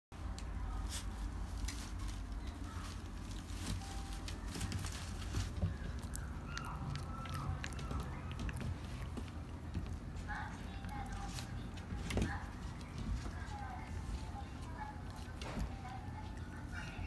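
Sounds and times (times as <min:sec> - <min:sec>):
puppy claws clicking on wooden floor: 0:04.6 - 0:10.2.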